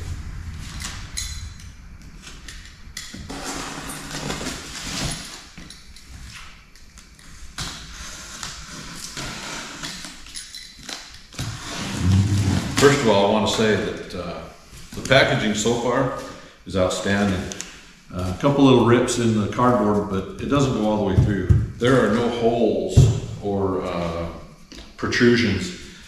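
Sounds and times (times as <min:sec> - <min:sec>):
cardboard and tape scraping: 0:11.4 - 0:13.0.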